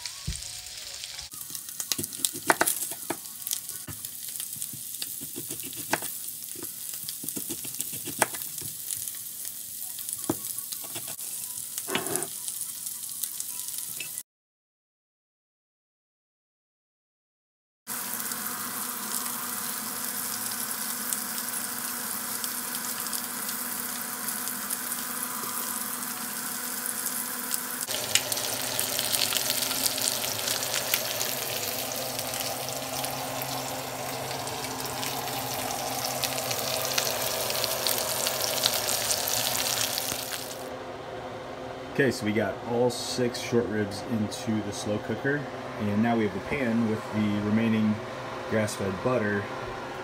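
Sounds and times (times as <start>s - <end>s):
meat sizzling in a skillet: 0.0s - 14.2s, 17.9s - 40.7s.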